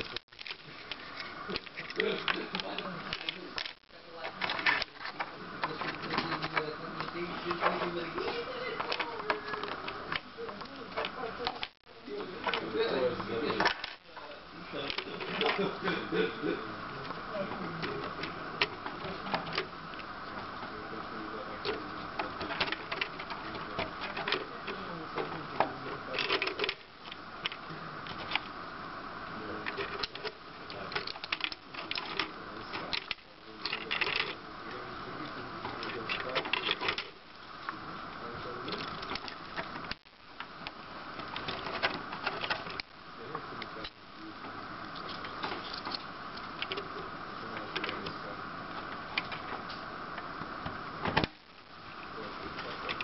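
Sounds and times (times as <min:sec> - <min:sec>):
plastic parts clicking and knocking: 0:21.6 - 0:28.5, 0:29.6 - 0:34.4, 0:35.6 - 0:37.2
plastic parts clicking: 0:29.6 - 0:34.4.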